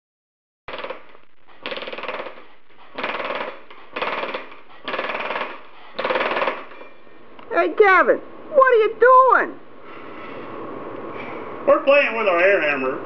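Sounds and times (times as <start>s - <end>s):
air hammer hammering metal sheet: 0.7s - 6.8s.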